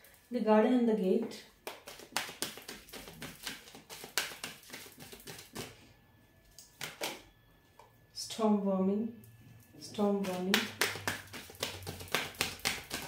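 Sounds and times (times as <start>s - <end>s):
cards being shuffled: 1.7s - 5.7s, 10.3s - 13.0s.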